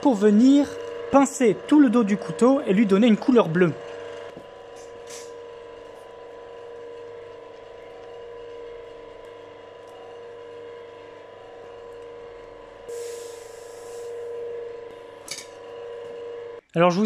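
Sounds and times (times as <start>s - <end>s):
steady hum of even tones: 0.0s - 16.6s
hot blade sizzling in water: 12.9s - 14.2s.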